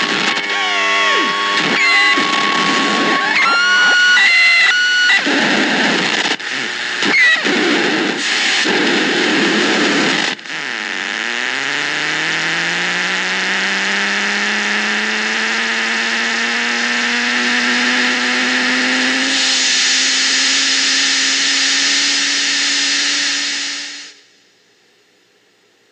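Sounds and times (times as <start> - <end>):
gliding electronic drone: 0.0 - 7.6
harsh electronic hiss: 0.0 - 14.8, 17.7 - 24.4.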